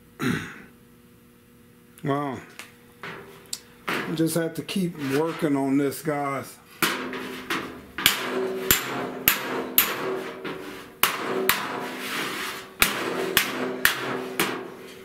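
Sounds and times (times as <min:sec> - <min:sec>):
hammer striking metal: 0:03.0 - 0:04.4, 0:06.8 - 0:15.0.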